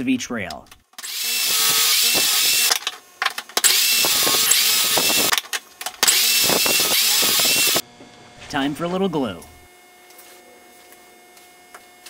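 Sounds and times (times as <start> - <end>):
electric drill whining: 1.0 - 3.0, 3.6 - 5.4, 6.0 - 7.8.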